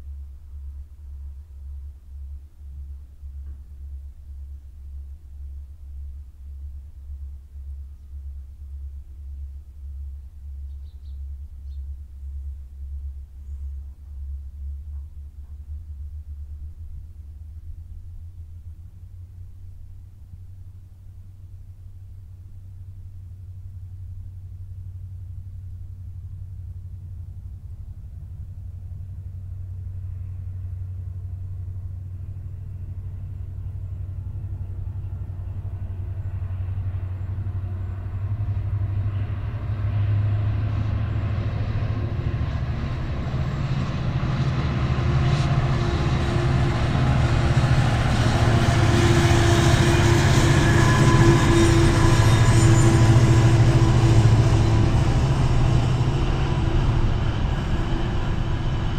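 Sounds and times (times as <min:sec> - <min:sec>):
diesel locomotive engine drone: 0:00.0 - 0:58.9
train wheels on rails: 0:32.3 - 0:58.9.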